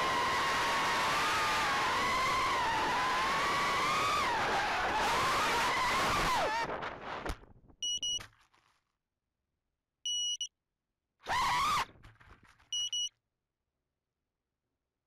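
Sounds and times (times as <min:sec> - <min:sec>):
short electronic beeps: 0:07.8 - 0:08.2, 0:10.1 - 0:10.5, 0:12.8 - 0:13.1.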